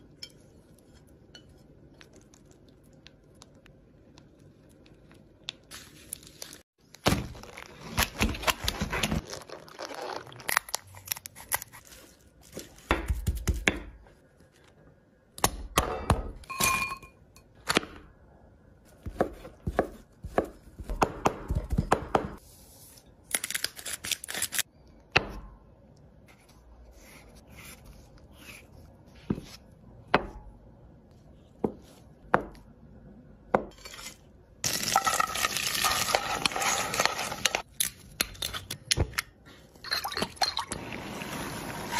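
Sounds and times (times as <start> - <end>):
knife chopping on cutting board: 19.0 - 22.4.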